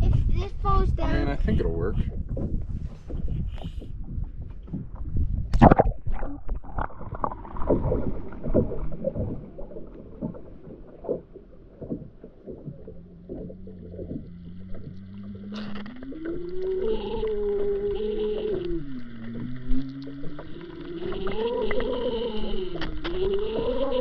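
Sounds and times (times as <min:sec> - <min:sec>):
underwater knocks and bumps: 0:00.0 - 0:16.4, 0:18.4 - 0:21.9
boat motor humming underwater: 0:01.5 - 0:24.0.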